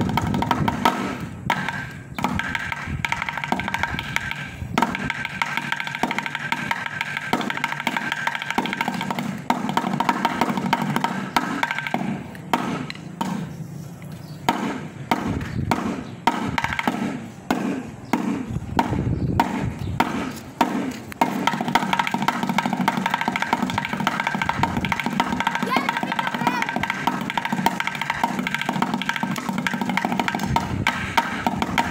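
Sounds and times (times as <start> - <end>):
backing song: 25.5 - 26.9.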